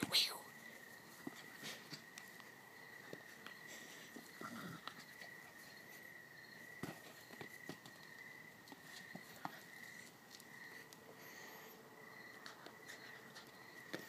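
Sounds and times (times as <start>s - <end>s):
crickets chirring: 0.0s - 14.0s
puppy scuffling with a ball: 1.0s - 10.4s.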